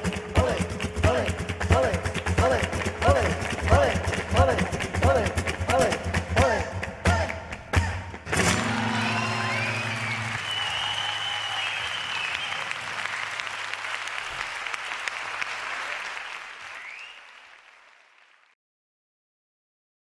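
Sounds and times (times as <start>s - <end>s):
audience applauding: 8.3s - 18.6s.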